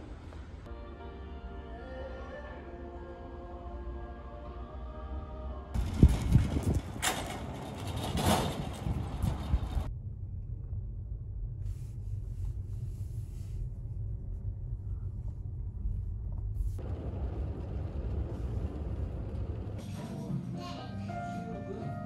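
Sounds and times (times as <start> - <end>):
car interior rumble: 5.8 - 19.8.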